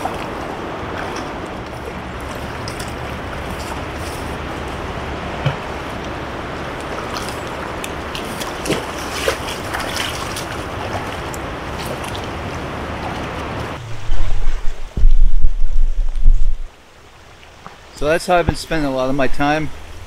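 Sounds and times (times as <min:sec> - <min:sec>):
river rushing: 0:00.0 - 0:15.0
wind buffeting microphone: 0:00.0 - 0:16.9.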